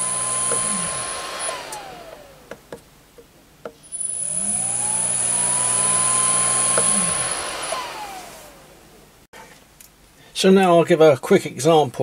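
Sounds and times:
electric motor whine: 0:00.0 - 0:02.7, 0:03.9 - 0:09.2.

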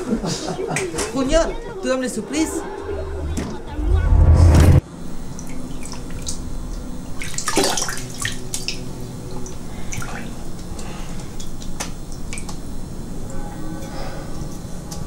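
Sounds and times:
water splashes from face washing: 0:07.2 - 0:08.8.

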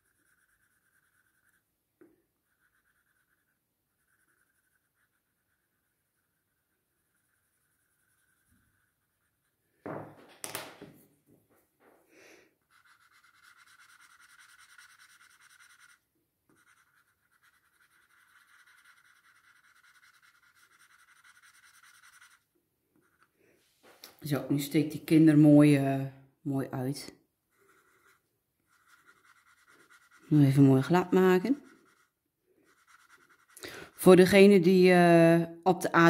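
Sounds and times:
tool rubbing on paper: 0:00.0 - 0:01.7, 0:02.4 - 0:09.6, 0:12.6 - 0:23.4, 0:27.5 - 0:34.4
pencil knocking on wooden table: 0:09.8 - 0:11.0.

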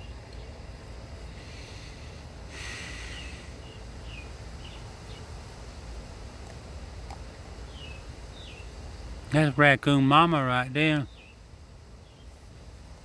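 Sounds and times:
breathy hiss: 0:00.8 - 0:05.8.

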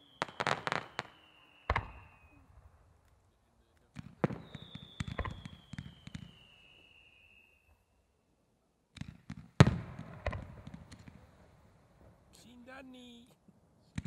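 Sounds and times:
falling firework whistle: 0:00.0 - 0:02.7, 0:04.2 - 0:08.0
fireworks bangs: 0:00.0 - 0:07.8, 0:08.9 - 0:12.5.

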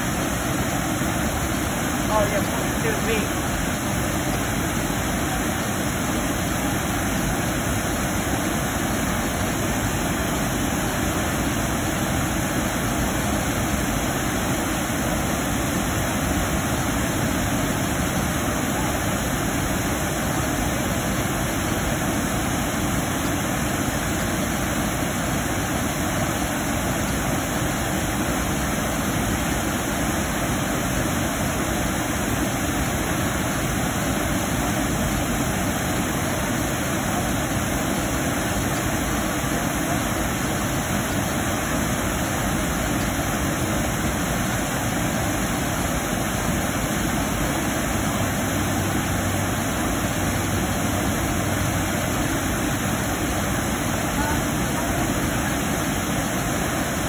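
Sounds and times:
water pouring over dam spillway: 0:00.0 - 0:57.0.

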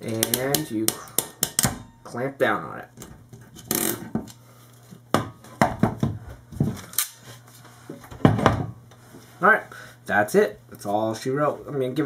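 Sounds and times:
crimping tool clicks and knocks: 0:00.1 - 0:01.8.

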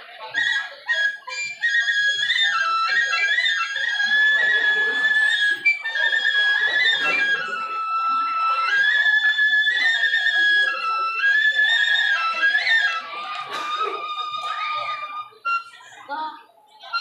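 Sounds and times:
bamboo flute melody: 0:00.0 - 0:16.1, 0:16.7 - 0:17.0
gamelan music: 0:01.1 - 0:16.0.

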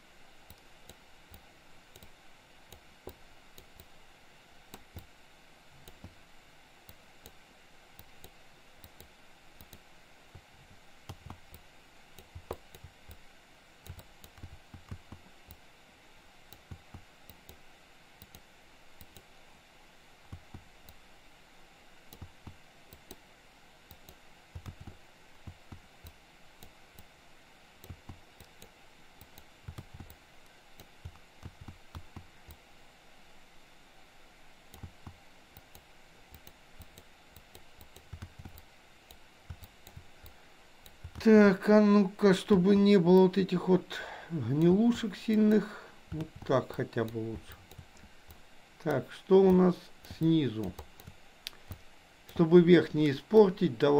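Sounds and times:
low steady hiss: 0:00.0 - 0:53.9
computer keyboard and mouse clicks: 0:00.5 - 0:03.9, 0:04.7 - 0:05.1, 0:05.8 - 0:06.2, 0:08.0 - 0:13.2, 0:13.8 - 0:15.6, 0:16.5 - 0:17.6, 0:18.2 - 0:19.3, 0:22.1 - 0:23.2, 0:23.9 - 0:27.1, 0:27.8 - 0:30.2, 0:30.8 - 0:32.6, 0:34.7 - 0:41.3, 0:46.1 - 0:52.4.

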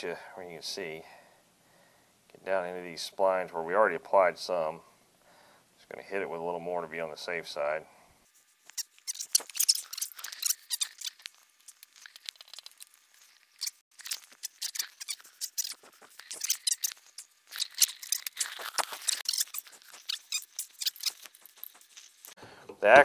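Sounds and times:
hands handling small parts: 0:08.4 - 0:22.4.

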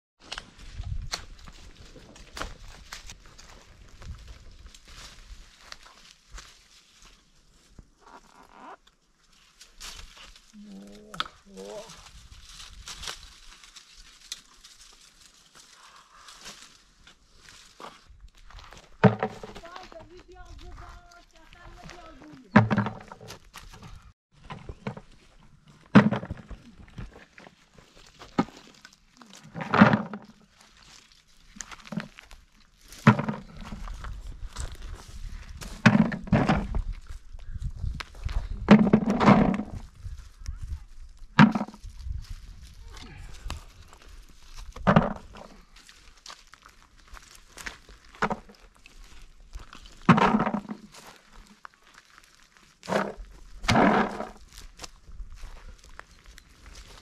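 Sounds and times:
dry leaves rustling: 0:00.4 - 0:07.8, 0:09.2 - 0:22.8, 0:27.1 - 0:35.8, 0:39.8 - 0:57.0
shuffling footsteps: 0:11.6 - 0:28.8
acorns knocking into plastic bucket: 0:50.1 - 0:50.8
acorns rattling into plastic bucket: 0:52.9 - 0:54.4.

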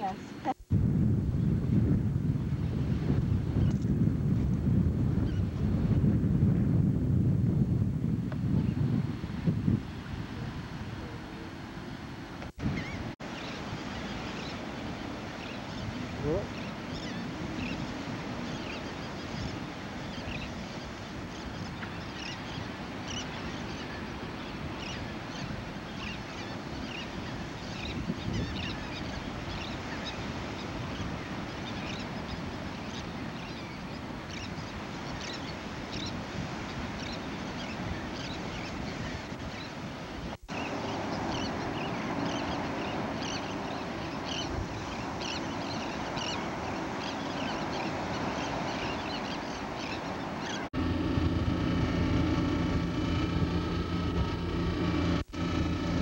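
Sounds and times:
surf washing on sand: 0:00.0 - 0:56.0
high seabird calls: 0:12.7 - 0:39.9, 0:40.5 - 0:50.7
steady low drone: 0:50.8 - 0:56.0.

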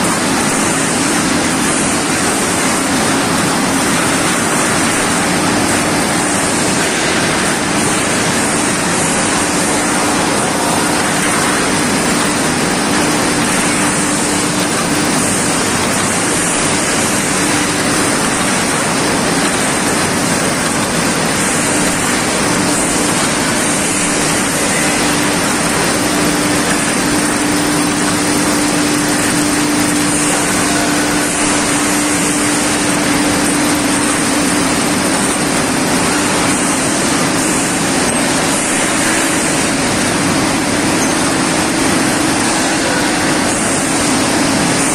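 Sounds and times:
tube mill machinery: 0:00.0 - 0:44.9.

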